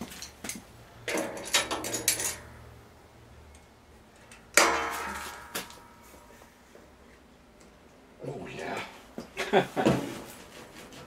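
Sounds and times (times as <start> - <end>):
metal clicks and rattles: 0.2 - 2.5
loud sharp metal clank: 4.6 - 6.3.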